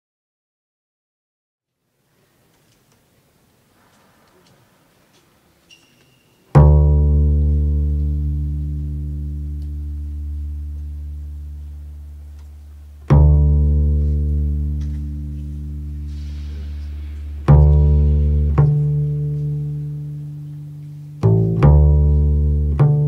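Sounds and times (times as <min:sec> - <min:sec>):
double bass plucked notes: 0:06.5 - 0:23.0.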